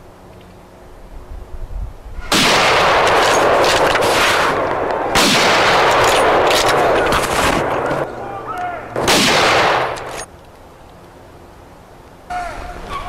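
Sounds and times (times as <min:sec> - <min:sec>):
rifle shots: 0:02.3 - 0:08.0, 0:09.0 - 0:10.3.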